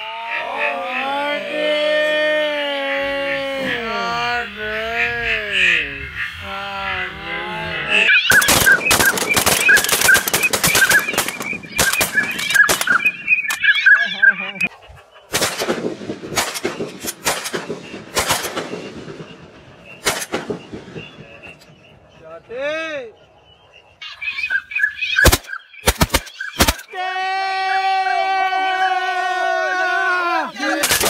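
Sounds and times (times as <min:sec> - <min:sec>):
honking call: 0:00.0 - 0:15.1
shotgun fire: 0:08.3 - 0:13.4, 0:15.3 - 0:21.6, 0:25.2 - 0:26.8, 0:30.8 - 0:31.0.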